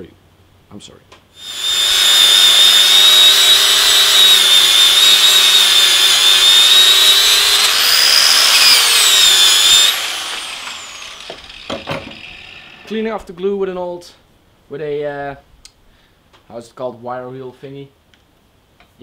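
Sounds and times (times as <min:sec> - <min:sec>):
angle grinder wire wheel whining: 0:01.4 - 0:13.0.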